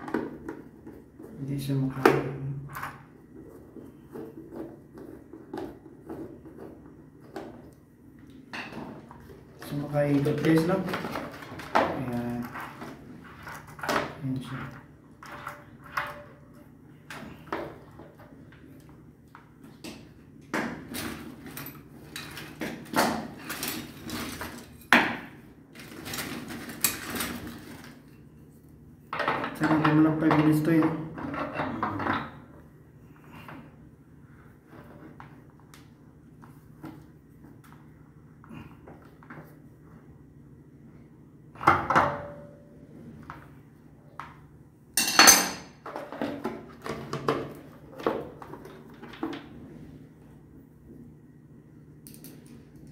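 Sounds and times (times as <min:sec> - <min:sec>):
tools and pipe fitting clinking: 0:45.0 - 0:45.7.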